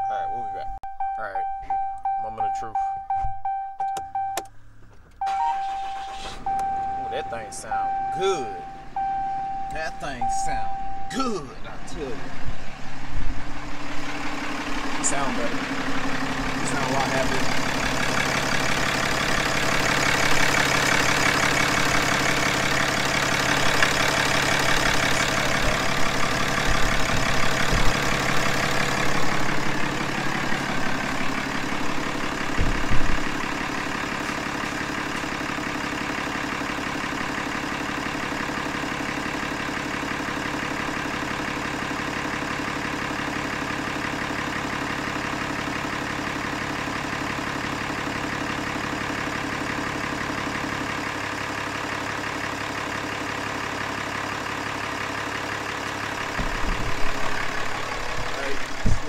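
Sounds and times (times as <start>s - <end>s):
diesel engine idling: 0.0s - 59.0s.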